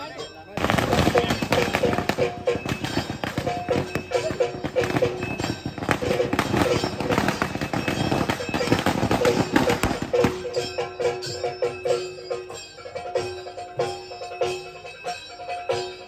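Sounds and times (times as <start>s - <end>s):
crowd voices: 0.0s - 11.3s
rhythmic live drumming: 0.0s - 16.0s
firecrackers crackling: 0.6s - 12.2s.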